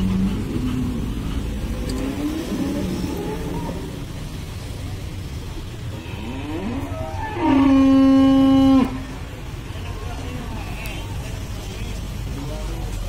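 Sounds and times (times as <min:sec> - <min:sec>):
cow mooing: 0:05.9 - 0:09.1.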